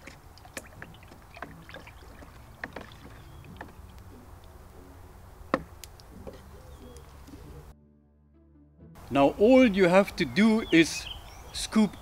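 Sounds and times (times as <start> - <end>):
stick knocking against bucket: 0.0 - 3.8, 5.5 - 6.4
water sloshing in a bucket: 0.0 - 4.0.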